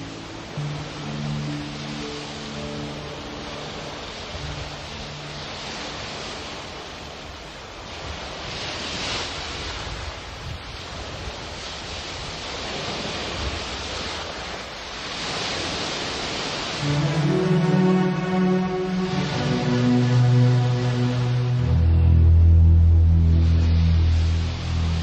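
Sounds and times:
music with held tones: 0.0s - 6.8s, 16.8s - 25.0s
surf rushing: 0.0s - 25.0s.

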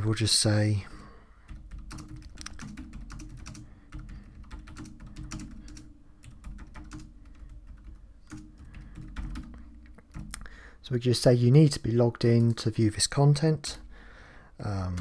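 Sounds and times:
typing on a computer keyboard: 1.4s - 10.5s.

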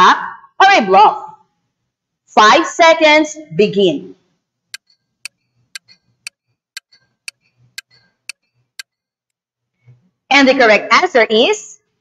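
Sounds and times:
ticking clock: 4.7s - 9.0s.

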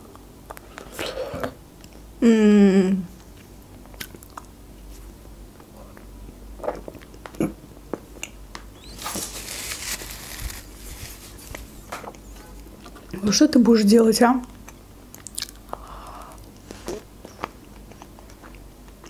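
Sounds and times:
wet mouth eating sounds: 14.6s - 19.0s.

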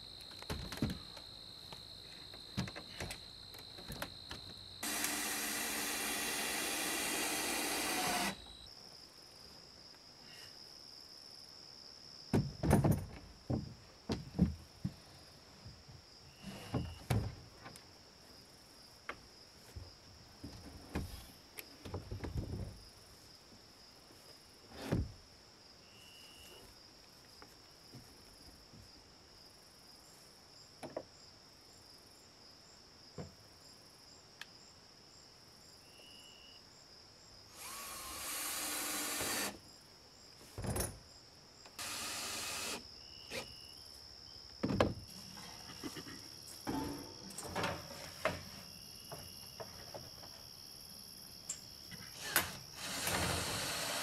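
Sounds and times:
crickets chirping: 0.0s - 54.0s
handling knocks and thuds: 0.4s - 1.2s, 12.3s - 15.0s, 16.6s - 17.7s, 40.5s - 41.0s, 44.6s - 45.1s, 46.6s - 50.4s
cordless drill driving screws: 4.8s - 8.5s, 37.6s - 39.6s, 41.8s - 43.4s, 52.2s - 54.0s.

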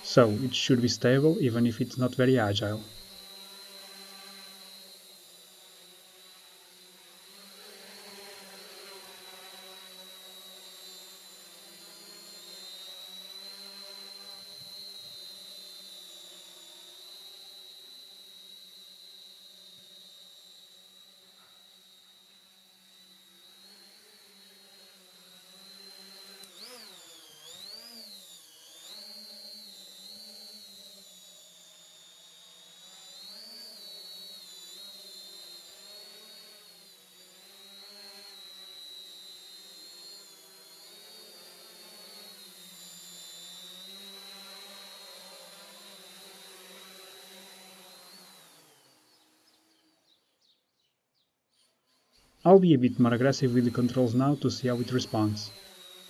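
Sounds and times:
drone motors whirring: 0.0s - 50.4s, 51.8s - 56.0s.

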